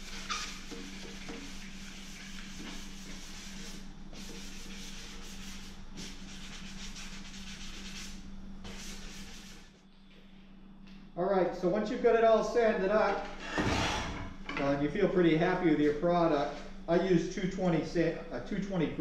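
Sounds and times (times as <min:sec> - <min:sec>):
sanding sponge rubbing wood: 0:00.0 - 0:09.8.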